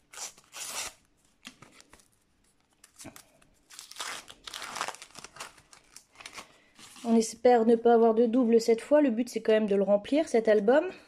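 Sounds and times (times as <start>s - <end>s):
paper packet tearing and crinkling: 0.0s - 2.1s, 2.7s - 7.2s.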